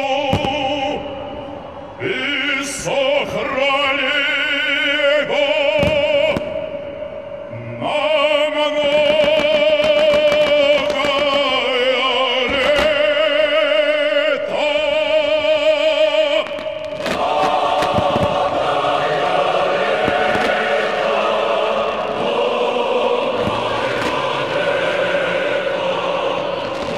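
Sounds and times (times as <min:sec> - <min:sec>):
operatic solo singing: 0:00.0 - 0:26.9
choir singing: 0:02.0 - 0:06.2, 0:07.6 - 0:26.9
sharp cracks: 0:09.0 - 0:13.3, 0:16.3 - 0:18.8.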